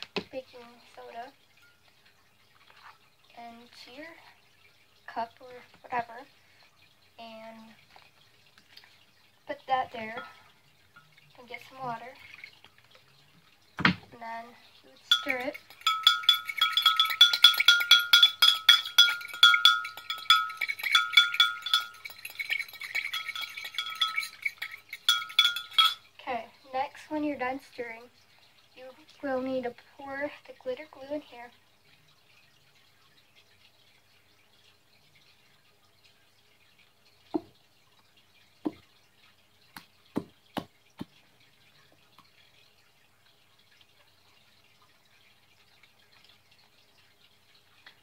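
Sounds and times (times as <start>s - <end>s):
spoon clinking in a mug: 15.1s - 26.1s.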